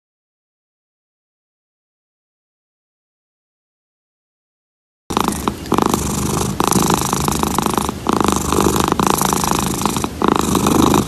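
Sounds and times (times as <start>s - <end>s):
cat purring: 5.1s - 11.0s.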